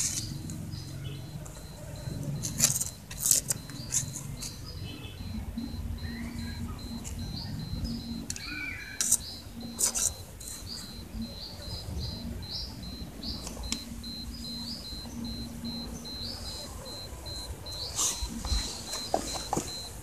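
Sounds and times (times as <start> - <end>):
insect chirping: 0.0 - 20.0
sharp clicks and rustles: 1.3 - 5.8, 12.9 - 16.3, 16.9 - 20.0.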